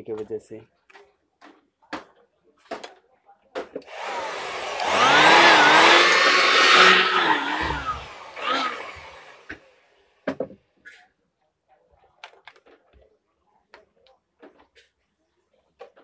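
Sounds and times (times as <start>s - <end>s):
electric blower running: 3.9s - 9.6s.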